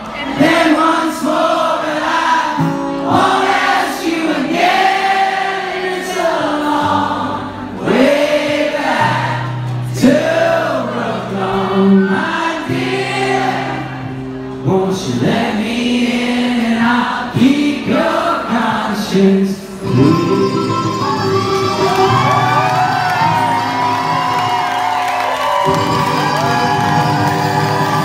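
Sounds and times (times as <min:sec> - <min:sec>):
acoustic guitars: 0:00.0 - 0:28.0
man singing: 0:00.4 - 0:04.5, 0:09.9 - 0:13.5, 0:14.6 - 0:22.1.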